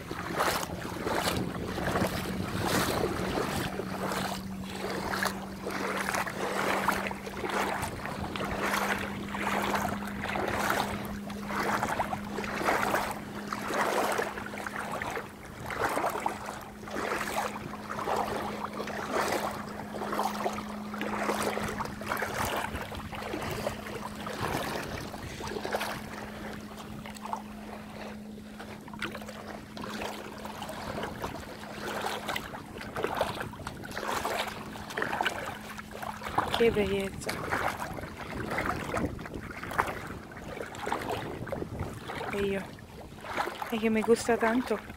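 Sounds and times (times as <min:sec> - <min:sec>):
low hum: 0:00.0 - 0:38.3
feet splashing through shallow water: 0:00.0 - 0:44.9.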